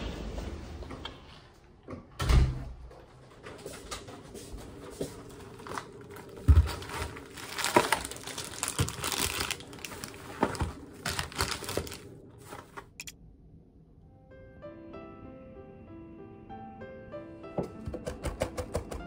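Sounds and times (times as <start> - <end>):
plastic packaging crinkling: 5.2 - 13.1.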